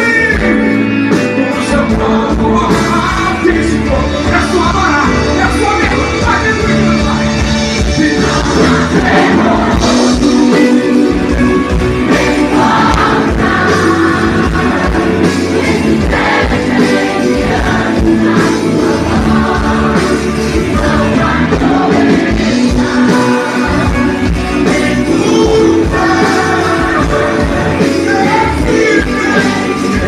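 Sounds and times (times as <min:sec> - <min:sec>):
man singing: 0:00.0 - 0:12.6, 0:21.0 - 0:30.0
electric guitar: 0:00.0 - 0:30.0
live band music: 0:00.0 - 0:30.0.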